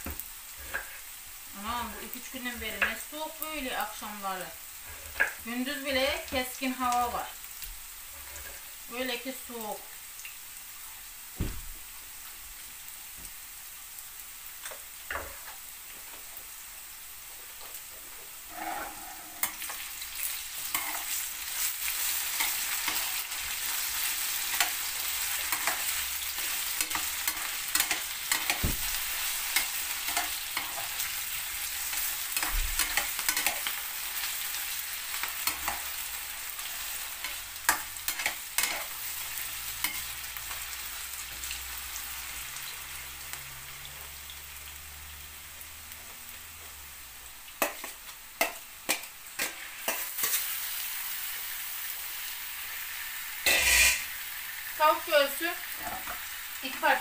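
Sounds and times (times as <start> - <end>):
potatoes sizzling in oil: 0.0 - 57.0
metal spatula scraping a pan: 0.6 - 1.1, 8.1 - 8.8, 18.5 - 34.5, 35.2 - 40.8, 53.4 - 54.2, 55.8 - 57.0.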